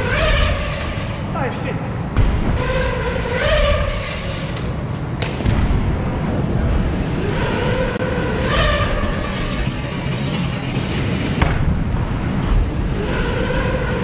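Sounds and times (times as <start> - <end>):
bike rolling on wooden ramps: 0.0 - 1.3, 2.0 - 14.0.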